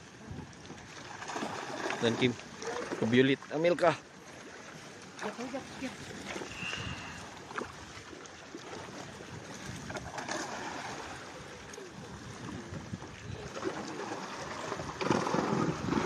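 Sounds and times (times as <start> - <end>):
fish thrashing in water: 1.1 - 3.1, 13.4 - 16.0.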